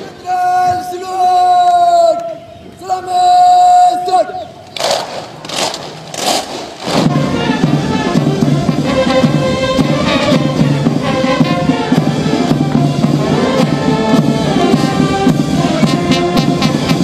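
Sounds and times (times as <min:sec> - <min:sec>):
brass instruments: 0:04.8 - 0:17.0
drums keeping the beat: 0:06.6 - 0:17.0.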